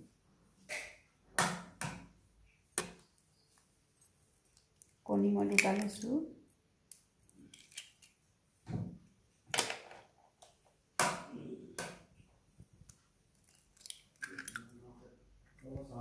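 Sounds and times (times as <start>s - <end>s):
egg cracking on glass bowl: 5.5s - 6.1s, 13.4s - 14.7s.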